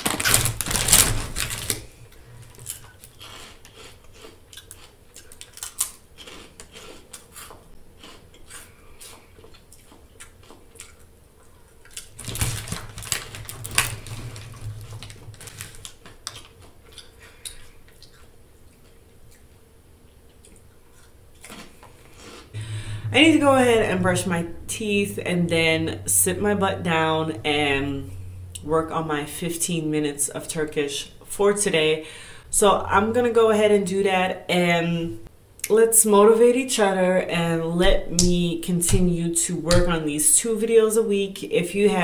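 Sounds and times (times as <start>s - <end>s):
plastic snack bag crinkling: 0.0s - 7.0s, 11.8s - 18.3s
crunchy snack chewing: 2.5s - 19.6s, 20.2s - 22.5s.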